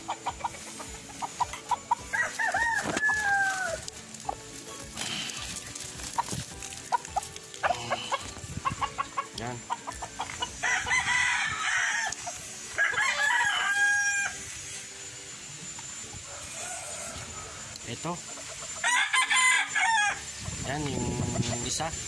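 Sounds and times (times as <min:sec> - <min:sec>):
chickens clucking: 0:00.0 - 0:14.1, 0:15.8 - 0:19.6, 0:20.2 - 0:22.0
rooster crowing: 0:01.8 - 0:03.9, 0:10.4 - 0:14.6, 0:16.2 - 0:17.8, 0:18.8 - 0:21.5.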